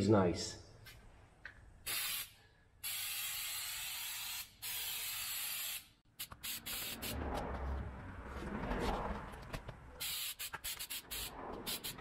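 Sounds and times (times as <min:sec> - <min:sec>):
aerosol can spraying: 0:01.9 - 0:07.2, 0:10.0 - 0:12.0.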